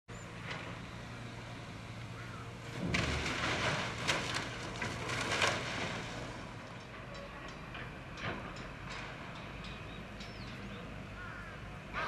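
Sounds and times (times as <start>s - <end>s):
concrete debris clattering and crashing: 2.8s - 6.3s.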